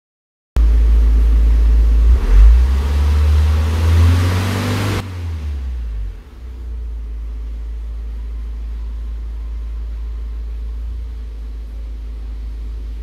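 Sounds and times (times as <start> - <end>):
diesel engine running: 0.6 - 13.0.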